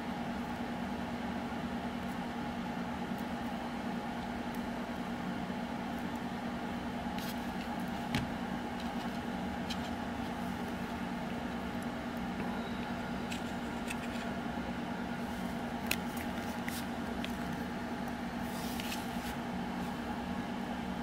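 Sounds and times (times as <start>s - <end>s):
low mechanical hum: 0.0s - 21.0s.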